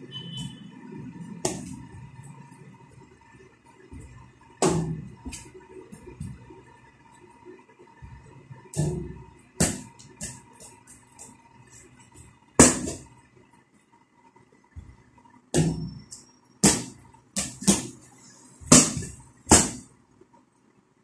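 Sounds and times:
small ball bouncing off hard surfaces: 1.4s - 2.1s, 8.0s - 11.4s, 12.2s - 13.1s, 15.5s - 18.0s, 18.6s - 19.9s.

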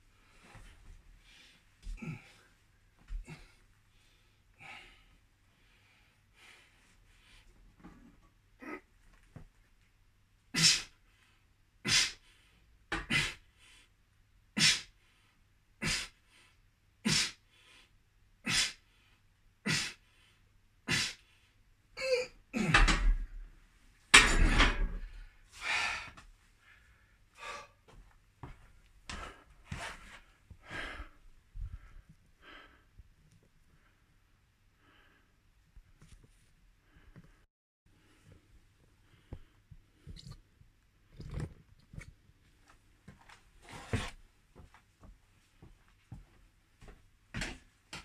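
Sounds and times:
man panting: 17.1s - 17.8s, 18.4s - 19.1s, 19.7s - 20.3s, 20.9s - 21.3s, 25.6s - 27.9s, 30.6s - 32.9s
man exhaling forcefully: 19.7s - 20.0s, 20.9s - 21.2s.

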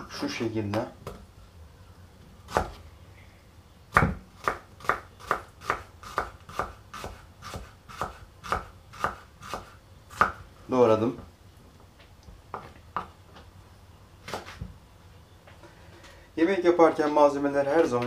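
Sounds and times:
knife chopping on wooden board: 3.9s - 10.4s.

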